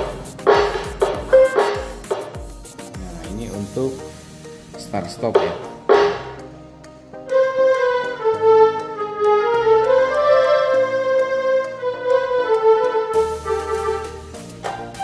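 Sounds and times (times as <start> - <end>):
repeating bass line: 0.0 - 2.2, 5.3 - 6.4
percussion ticks: 0.0 - 3.6, 5.2 - 7.0
keyboard melody: 0.0 - 15.0.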